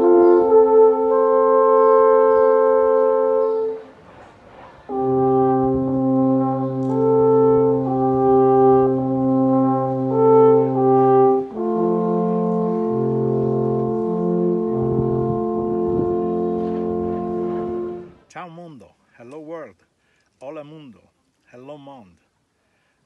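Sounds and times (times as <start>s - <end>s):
alphorns playing in harmony: 0.0s - 3.9s, 4.9s - 18.3s.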